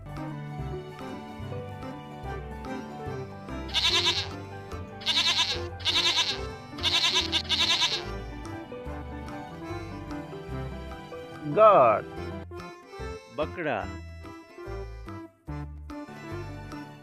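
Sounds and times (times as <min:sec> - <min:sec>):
background music: 0:00.0 - 0:17.0
goat bleating: 0:03.7 - 0:04.4, 0:05.0 - 0:08.2.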